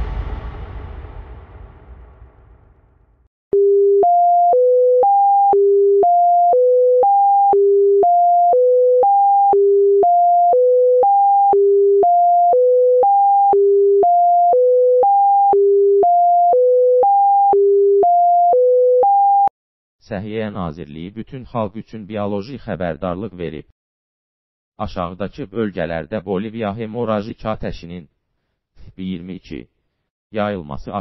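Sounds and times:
low rumble: 0:00.0 - 0:03.3.

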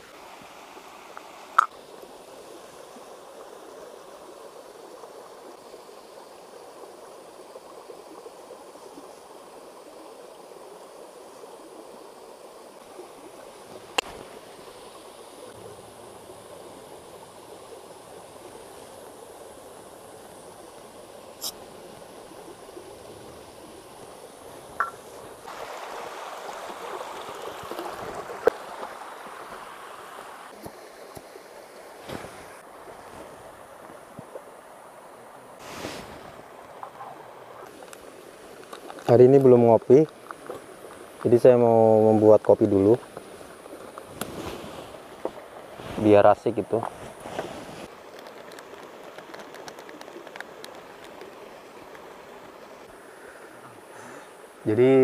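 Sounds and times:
river and waterfall rushing: 0:24.4 - 0:34.0.

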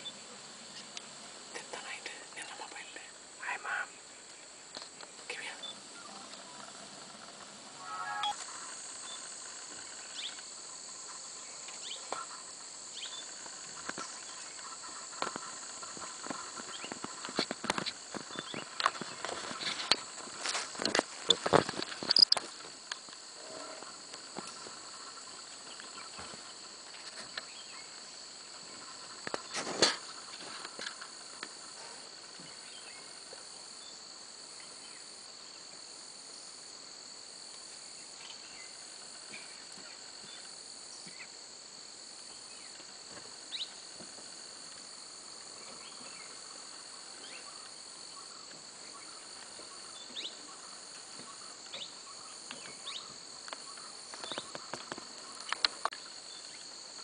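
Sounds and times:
insects chorus shrilling: 0:00.0 - 0:57.0
faint clicks: 0:53.4 - 0:56.7.

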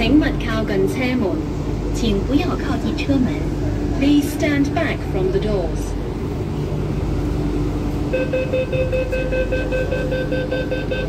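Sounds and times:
train humming: 0:00.0 - 0:11.0
rapid high electronic beeps: 0:08.2 - 0:11.0.

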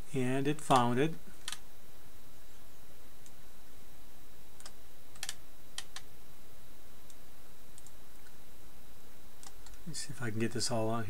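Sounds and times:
steady background hiss: 0:00.0 - 0:11.0
computer mouse clicks: 0:07.0 - 0:08.4, 0:09.4 - 0:09.8.

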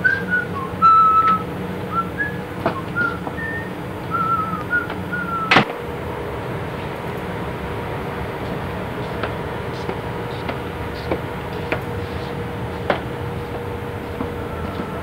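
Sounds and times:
person whistling a tune: 0:00.0 - 0:05.6
steady low hum: 0:00.0 - 0:15.0.

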